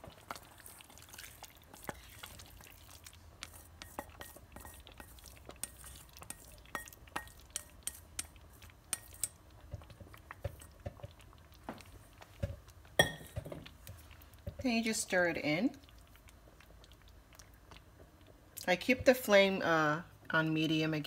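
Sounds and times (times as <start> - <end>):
utensil clinking against pot: 3.8 - 9.4, 13.0 - 13.5.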